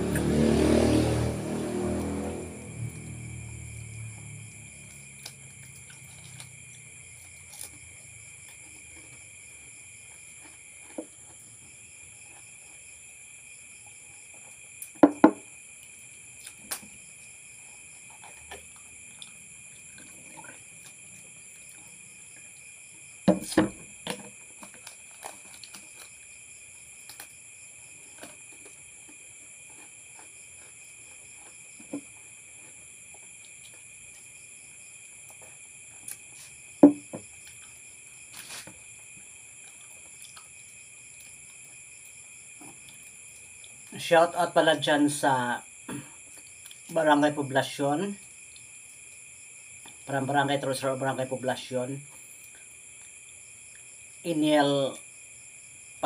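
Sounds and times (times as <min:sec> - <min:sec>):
crickets chirping: 0:00.0 - 0:56.0
sharp knocks: 0:15.0 - 0:15.4, 0:36.8 - 0:37.2.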